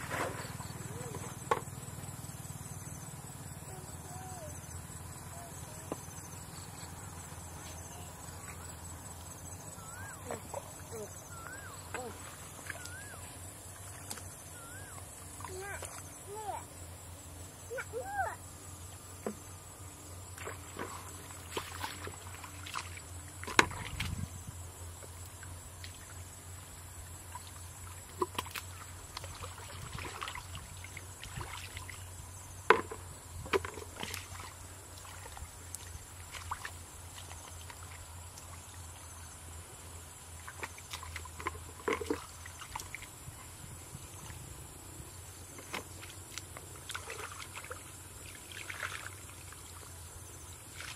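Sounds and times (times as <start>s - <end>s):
hands splashing in muddy water: 20.4s - 24.3s, 45.5s - 49.6s.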